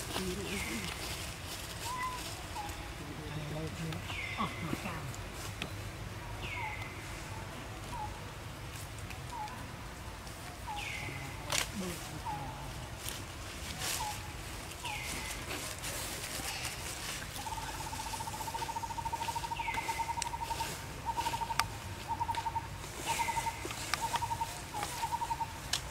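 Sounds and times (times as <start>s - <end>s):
bird trilling: 17.4s - 25.6s.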